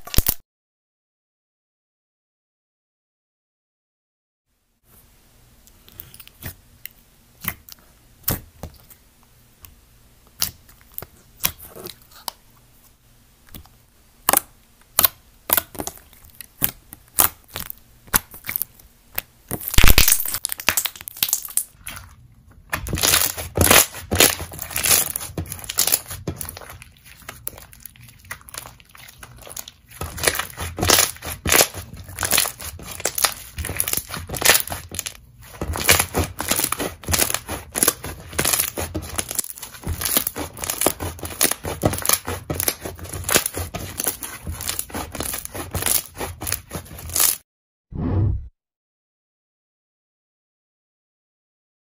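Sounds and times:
slime popping and crackling: 0.0 - 0.4, 14.2 - 47.4.

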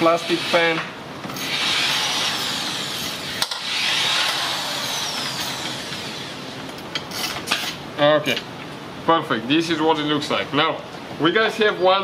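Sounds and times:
cordless power driver whirring: 3.4 - 6.0.

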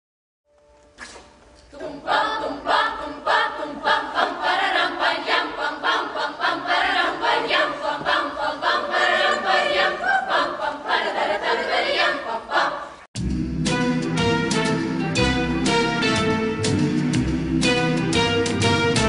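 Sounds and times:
children's choir singing: 1.7 - 13.1.

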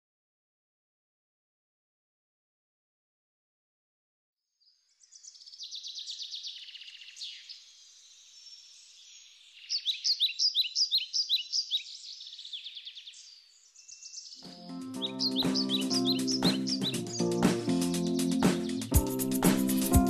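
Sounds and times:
birds chirping: 5.0 - 20.0.

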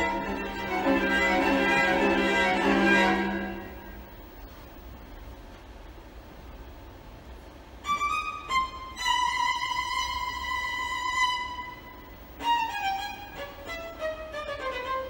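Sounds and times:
violin playing: 0.0 - 4.2, 7.8 - 15.0.

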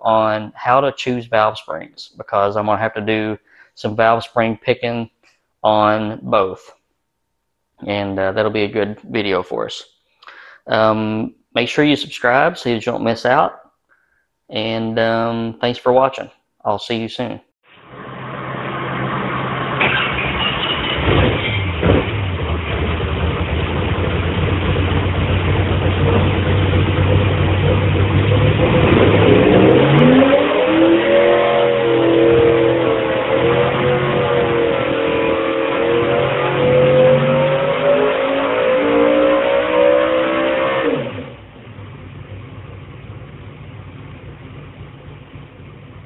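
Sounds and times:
car engine revving: 17.8 - 46.0.

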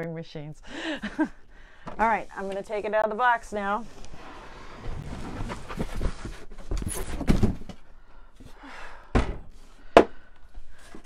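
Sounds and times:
cardboard rustling and scraping: 3.6 - 7.8.

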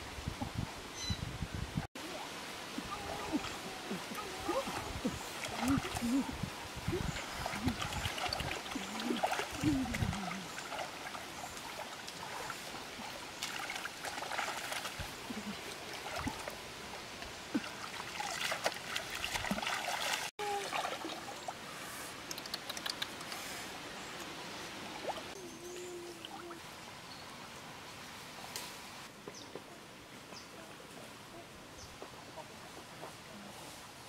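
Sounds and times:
water trickling and splashing: 1.8 - 27.5.

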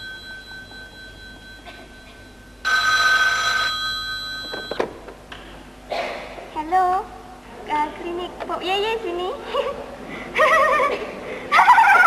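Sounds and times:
telephone bell ringing: 0.0 - 4.9.

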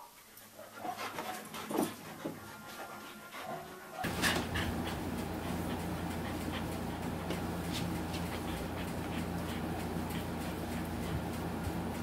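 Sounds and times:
dog panting: 0.3 - 12.0
steady low hum: 4.0 - 12.0.

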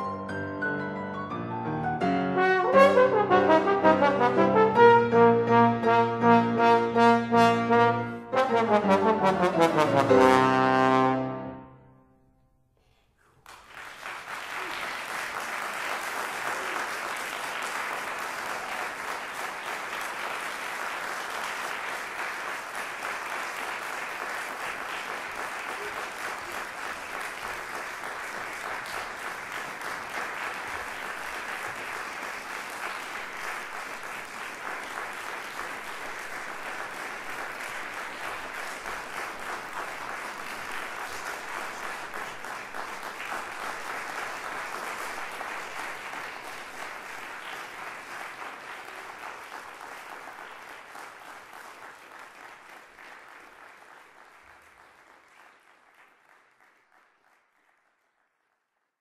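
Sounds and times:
audience applauding: 13.2 - 58.8.

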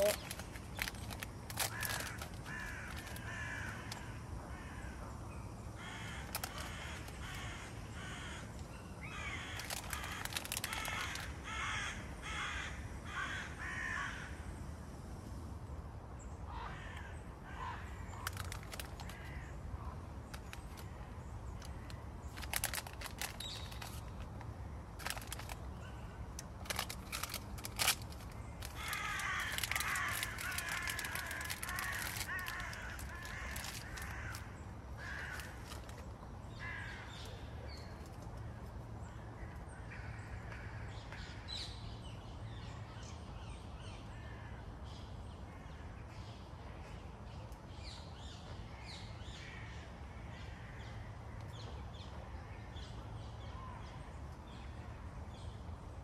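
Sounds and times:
crows cawing: 0.0 - 5.0, 5.8 - 14.4, 16.5 - 19.6, 28.6 - 37.3.

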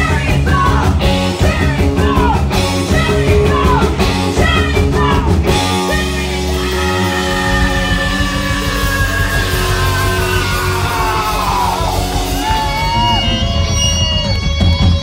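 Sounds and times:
woman singing: 0.0 - 10.2
rock band playing: 0.0 - 15.0.

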